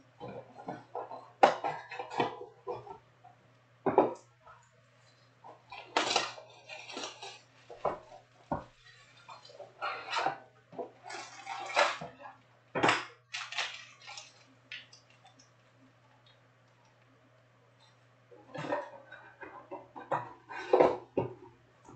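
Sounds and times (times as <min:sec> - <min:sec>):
foil card packs crinkling: 0:05.8 - 0:07.7, 0:13.3 - 0:15.3.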